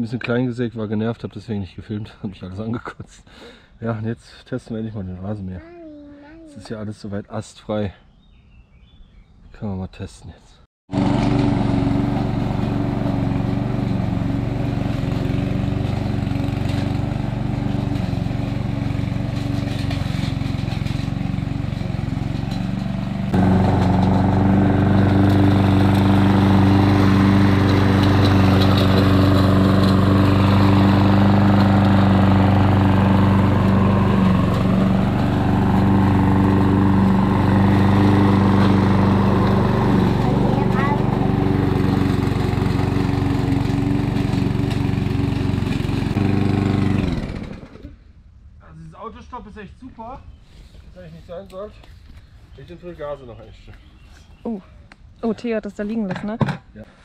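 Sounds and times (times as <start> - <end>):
lawn mower engine hum: 10.9 - 48.0.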